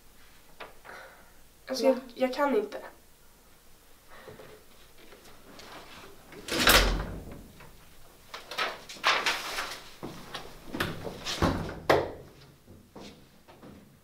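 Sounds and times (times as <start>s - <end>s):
door shutting with thud: 6.5s - 7.5s, 10.8s - 12.2s
footsteps: 12.3s - 13.9s.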